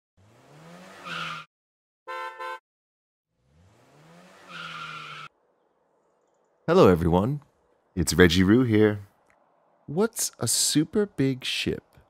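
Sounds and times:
car engine revving: 0:00.2 - 0:01.4, 0:03.3 - 0:06.6
tyre squeal: 0:00.9 - 0:01.5, 0:04.4 - 0:05.3
car horn beeps: 0:02.1 - 0:02.6.

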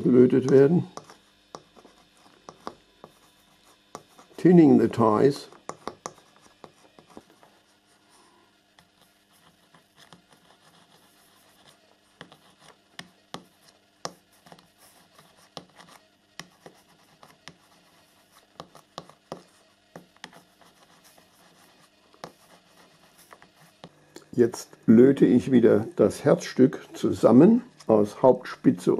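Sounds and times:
soldering iron scraping and tapping: 0:00.3 - 0:04.1, 0:05.6 - 0:07.4, 0:12.2 - 0:14.7.

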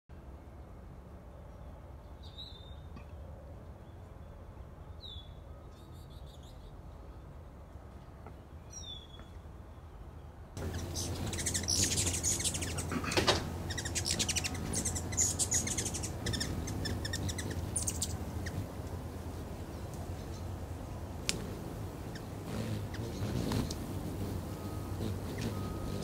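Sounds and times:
steady low hum: 0:10.0 - 0:26.0
hummingbirds chattering: 0:10.6 - 0:26.0.

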